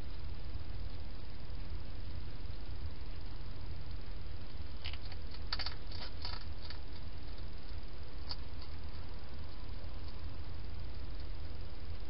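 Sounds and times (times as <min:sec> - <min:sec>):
steady low hum: 0:00.0 - 0:12.0
hedgehog crunching food: 0:04.8 - 0:10.2.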